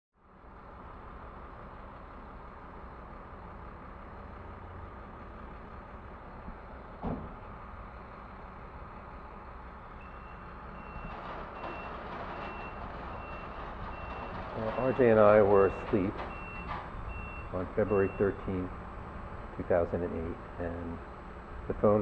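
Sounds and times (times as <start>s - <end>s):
street traffic rumble: 0.2s - 22.0s
sharp thump: 7.0s - 7.4s
reversing alarm beeps: 10.0s - 18.6s.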